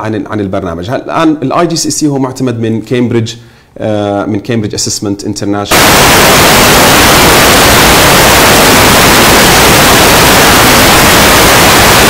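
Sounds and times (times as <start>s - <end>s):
static hiss: 5.7s - 12.0s.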